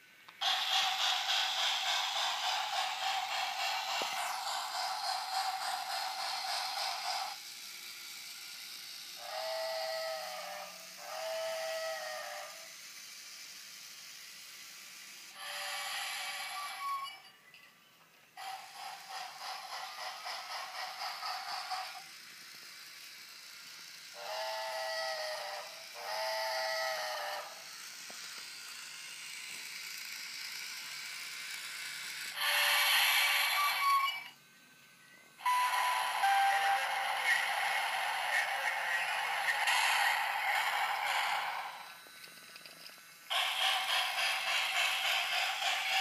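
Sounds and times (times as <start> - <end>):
toy train steam chuffing: 0.0 - 46.0
loud hissing: 0.4 - 7.4
toy train whistle blasts: 9.0 - 12.8, 15.3 - 17.2, 24.1 - 27.7, 32.3 - 34.4, 35.4 - 41.9.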